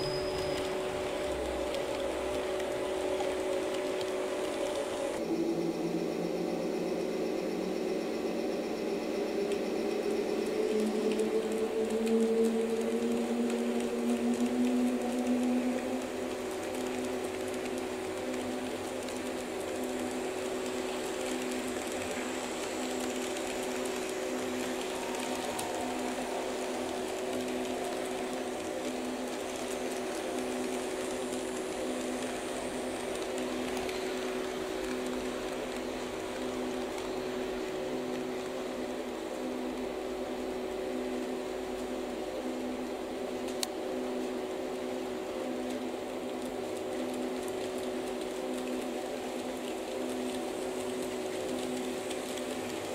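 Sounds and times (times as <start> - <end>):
model train humming: 0.0 - 37.6.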